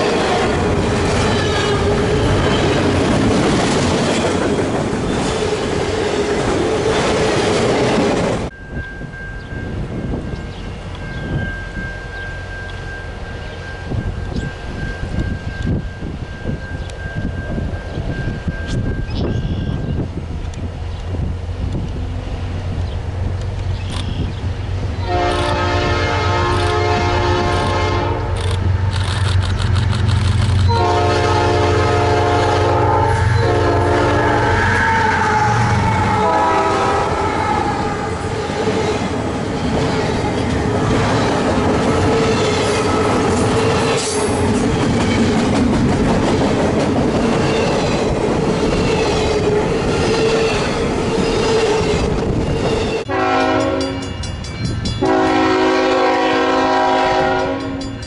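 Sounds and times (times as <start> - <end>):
train horn blasts: 0.0 - 2.9, 25.0 - 28.4, 30.7 - 38.7, 53.1 - 54.2, 55.0 - 57.9
train cars rumbling and clattering: 0.0 - 58.0.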